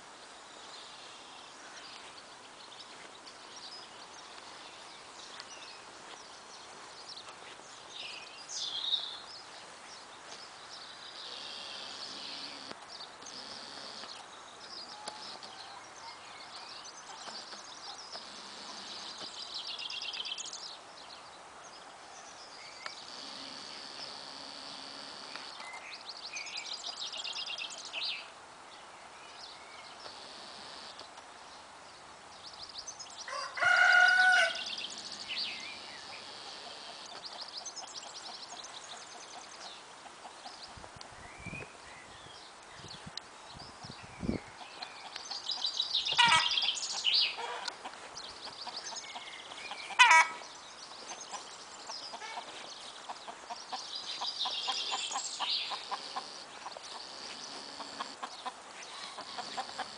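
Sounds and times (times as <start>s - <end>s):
songbirds singing: 0.0s - 59.9s
rooster crowing: 33.3s - 35.6s.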